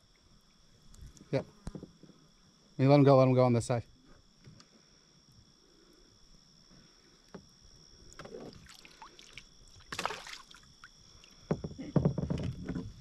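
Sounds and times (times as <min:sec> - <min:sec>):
water splash: 0:08.6 - 0:10.7.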